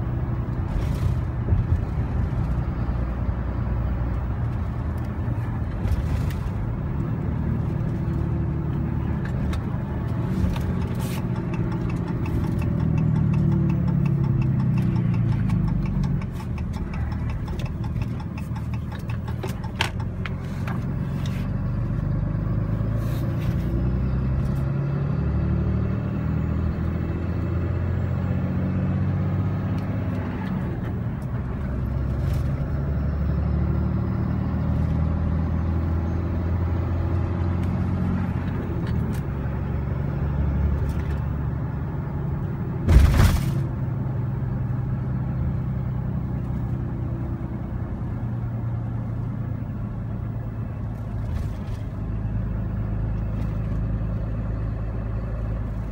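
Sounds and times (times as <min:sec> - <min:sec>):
diesel engine running: 0:00.0 - 0:55.9
loud thump: 0:42.8 - 0:43.6.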